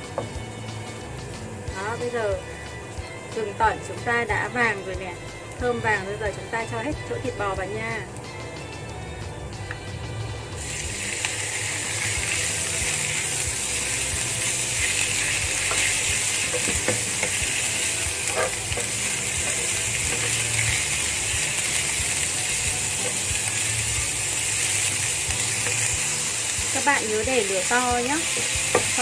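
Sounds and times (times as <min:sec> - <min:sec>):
beef sizzling in hot oil: 0:00.0 - 0:09.2, 0:10.4 - 0:29.0
wooden spatula scraping and tapping: 0:15.6 - 0:17.6, 0:18.2 - 0:20.7.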